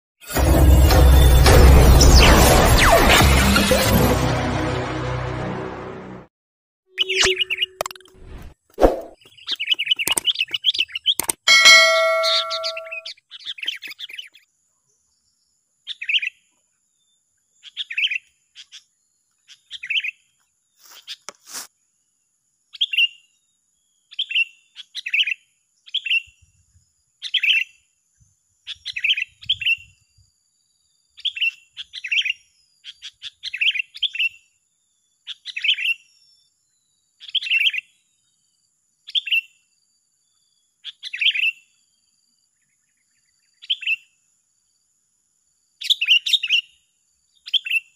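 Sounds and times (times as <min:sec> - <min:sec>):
bird chirping: 0:06.9 - 0:14.2.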